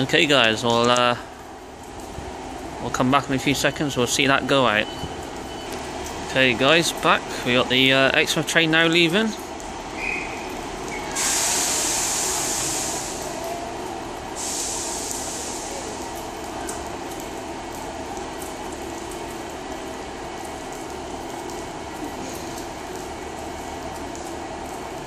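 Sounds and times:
diesel train engine idling: 0.0 - 25.0
air brakes hissing: 10.0 - 13.6, 14.3 - 16.0.

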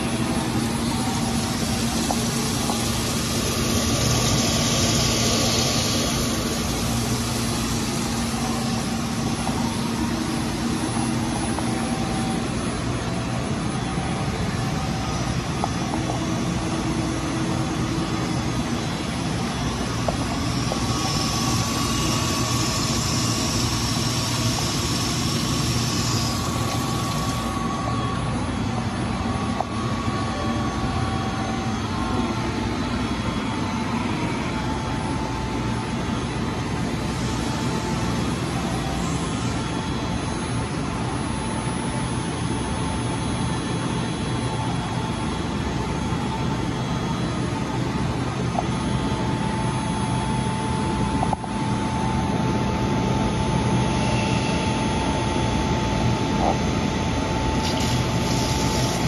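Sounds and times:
surface grinder whirring: 0.0 - 12.3, 57.6 - 59.0.

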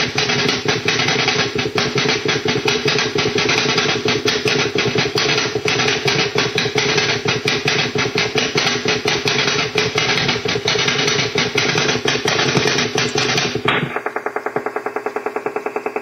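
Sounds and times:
steady hum: 0.0 - 16.0
rapid pulsing radio signal: 11.6 - 16.0.

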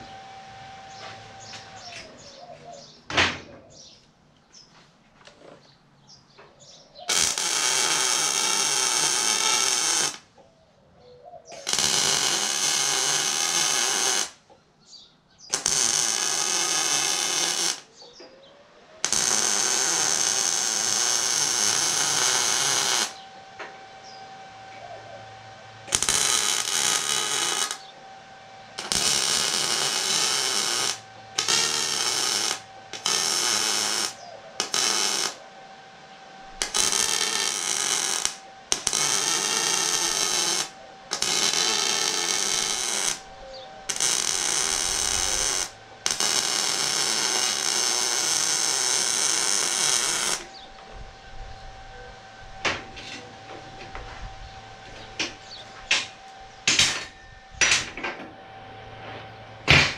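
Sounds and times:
faint steady hum: 0.0 - 59.9
welding arc bursts: 7.1 - 10.3, 11.6 - 14.4, 15.5 - 17.9, 19.0 - 23.2, 25.8 - 27.9, 28.8 - 35.4, 36.4 - 50.6.

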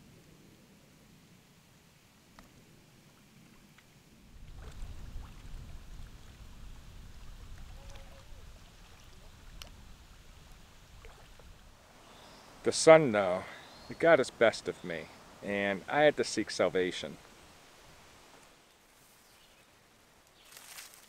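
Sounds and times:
low wind noise on microphone: 0.0 - 11.8
faint ticks: 9.5 - 9.8.

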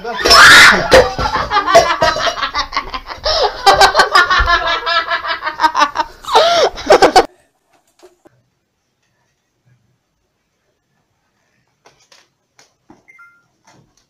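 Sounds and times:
people laughing hard: 0.3 - 7.3.

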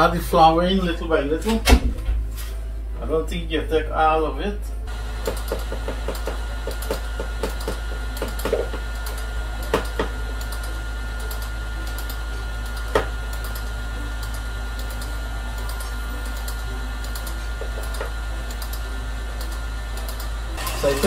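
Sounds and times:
stand mixer humming and whining: 4.9 - 21.0.

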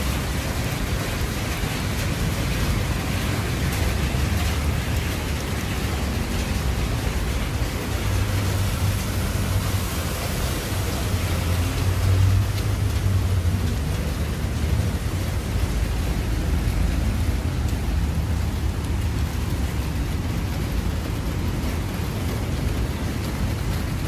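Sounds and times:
rain falling on wet street: 0.0 - 24.0.

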